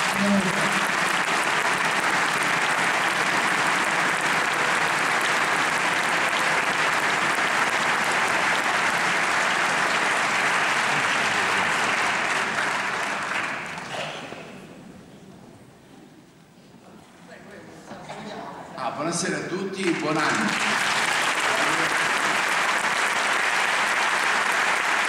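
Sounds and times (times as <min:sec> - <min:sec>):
audience applauding: 0:00.0 - 0:14.1, 0:19.8 - 0:25.0.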